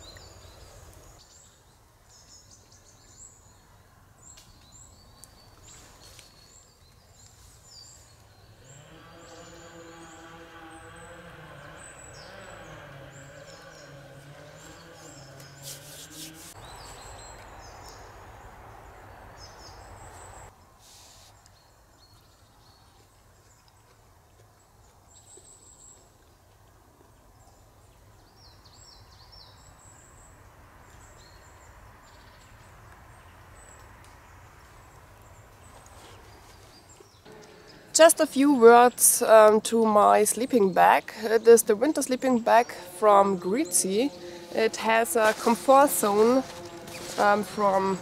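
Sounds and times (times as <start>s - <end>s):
small birds chirping: 0.0s - 18.2s
rubbing and handling noise: 15.6s - 16.6s, 44.6s - 48.0s
faint steady hiss: 20.2s - 21.6s.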